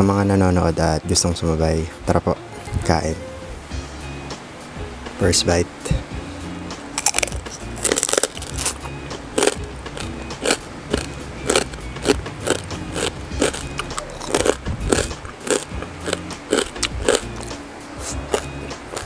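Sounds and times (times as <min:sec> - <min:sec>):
soft background music: 0:00.0 - 0:19.0
crunchy chewing: 0:07.0 - 0:19.0.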